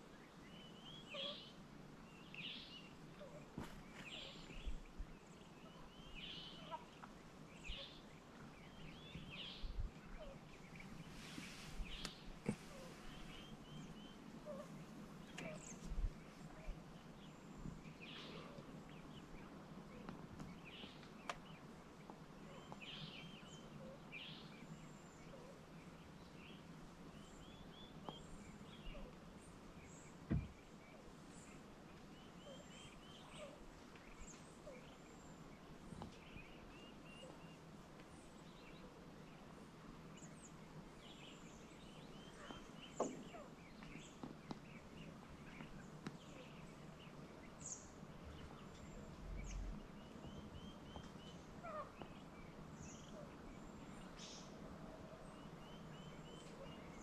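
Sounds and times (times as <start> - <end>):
birds chirping: 0.0 - 57.0
low steady hum: 0.0 - 57.0.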